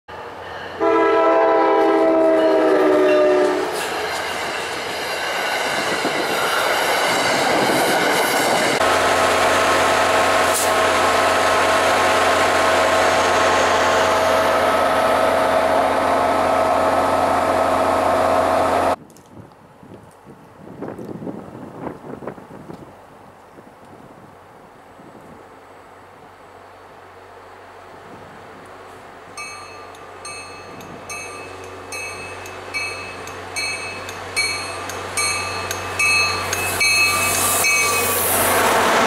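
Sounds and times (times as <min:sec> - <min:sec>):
locomotive engine drone: 0:00.1 - 0:19.0
train rail noise: 0:00.1 - 0:39.0
train air horn: 0:00.8 - 0:03.8.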